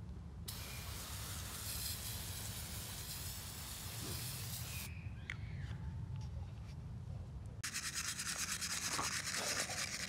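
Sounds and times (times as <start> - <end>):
aerosol spray can hissing: 0.5 - 4.9.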